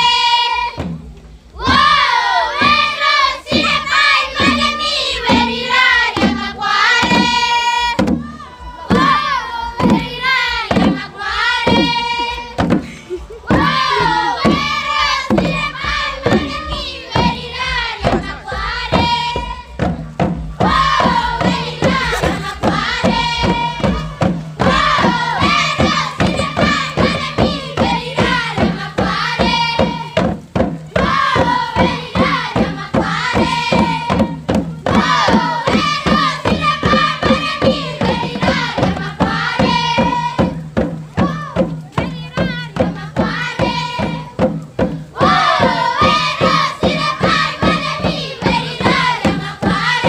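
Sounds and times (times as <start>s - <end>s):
group of voices singing: 0.0s - 1.0s, 1.6s - 50.0s
hand drums beating: 0.0s - 50.0s.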